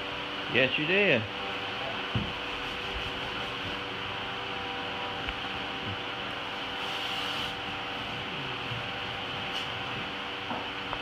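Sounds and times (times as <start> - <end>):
mechanical hum: 0.0 - 11.0
paint roller rubbing on wall: 2.3 - 4.0, 6.6 - 10.3.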